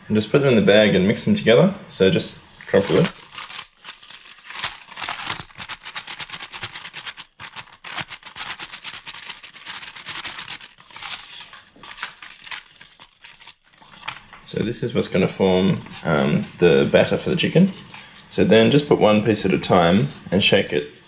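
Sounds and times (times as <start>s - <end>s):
paper bag crumpling and rustling: 2.6s - 15.9s.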